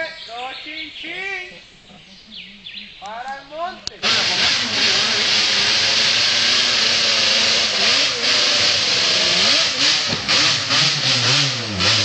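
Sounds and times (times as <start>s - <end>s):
two-stroke engine revving hard: 4.0s - 12.0s.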